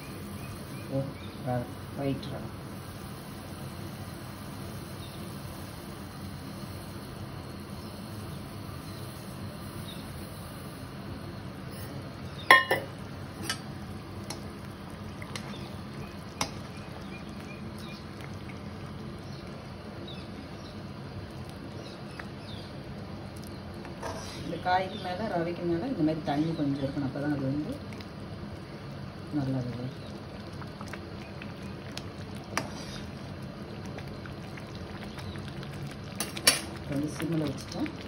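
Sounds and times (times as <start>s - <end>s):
water boiling with bubbling hiss: 0.0s - 38.0s
utensil clinking against pan: 12.5s - 12.9s.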